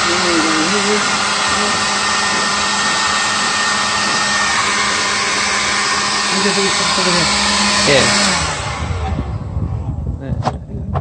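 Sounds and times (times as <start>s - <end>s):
leaf blower rushing air: 0.0s - 10.2s.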